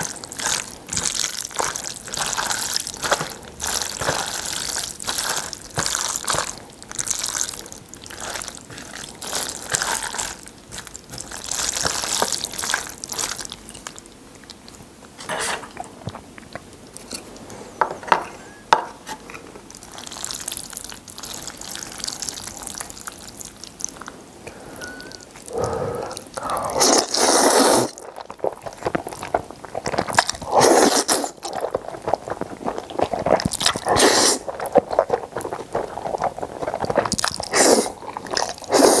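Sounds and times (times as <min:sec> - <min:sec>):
chopsticks stirring sticky noodles: 0:00.0 - 0:14.0
noodles being slurped: 0:00.0 - 0:14.0, 0:19.8 - 0:39.0.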